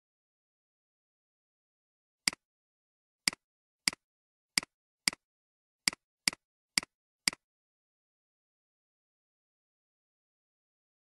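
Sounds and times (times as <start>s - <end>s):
computer mouse clicking: 3.3s - 4.0s, 4.6s - 5.2s, 5.9s - 7.4s.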